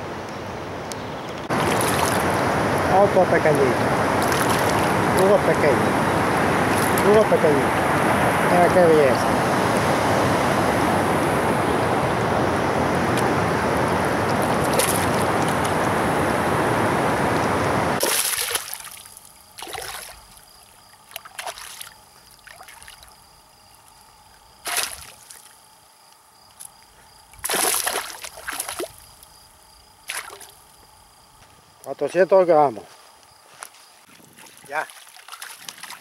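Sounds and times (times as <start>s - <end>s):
fish splashing at water surface: 1.5s - 2.5s, 4.2s - 5.0s, 14.3s - 15.8s, 18.0s - 20.2s, 21.1s - 23.1s, 24.6s - 25.6s, 27.4s - 29.2s, 30.1s - 30.6s, 34.3s - 36.0s
loud steady rushing noise: 1.5s - 18.0s.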